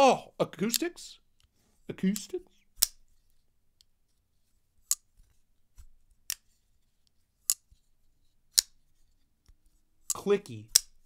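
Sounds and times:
knife blade snapping open and shut: 10.7s - 11.0s.

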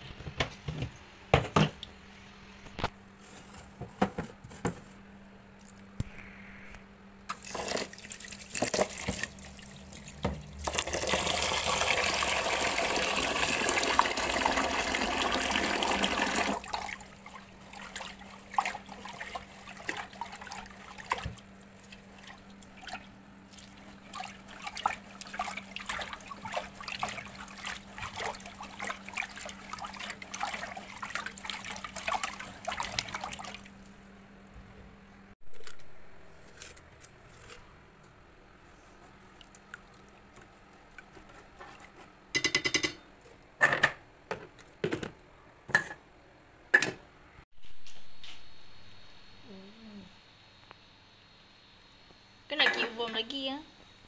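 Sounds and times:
water tap running into pot: 7.3s - 21.4s
water splashing and dripping: 7.3s - 33.9s.

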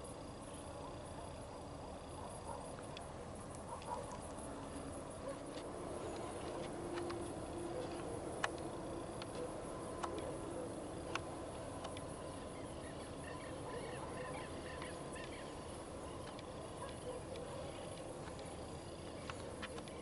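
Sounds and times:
outdoor background noise: 0.0s - 20.0s
light clicks: 5.4s - 10.3s, 11.0s - 12.1s.

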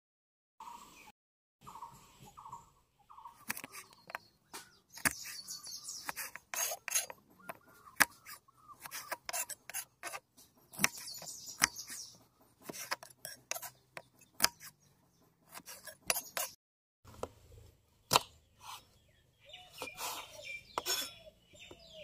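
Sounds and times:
bird chirping: 0.6s - 16.6s, 17.9s - 22.0s
knife chopping onions on board: 6.0s - 14.8s.

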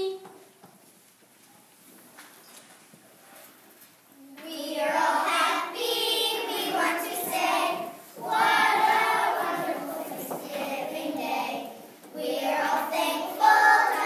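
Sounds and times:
young children singing: 4.2s - 14.0s.

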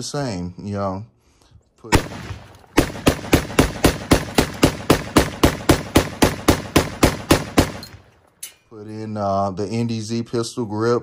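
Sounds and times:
rapid gunshots with echo: 1.9s - 8.1s.

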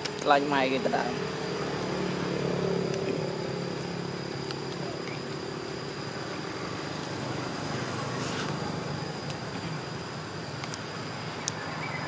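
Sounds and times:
high-pitched whine: 0.0s - 12.0s
low hum: 0.0s - 12.0s
outdoor background hiss: 0.0s - 12.0s.

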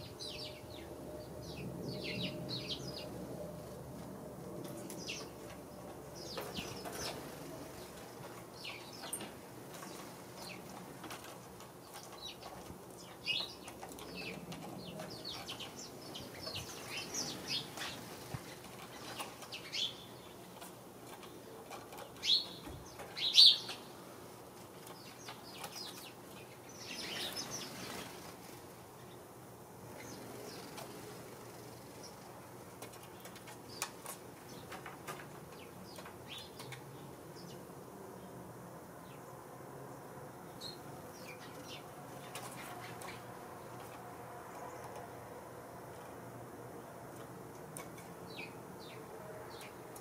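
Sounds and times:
sparrows chirping: 0.0s - 3.8s, 4.6s - 38.4s, 40.3s - 44.0s, 46.8s - 50.0s
wings fluttering: 26.9s - 28.7s.

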